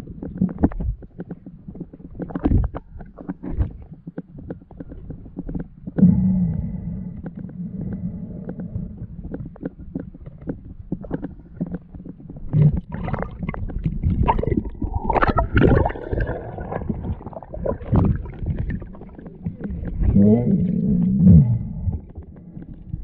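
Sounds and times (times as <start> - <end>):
small underwater clicks and pops: 0.0 - 23.0
water sloshing and splashing: 9.5 - 21.2.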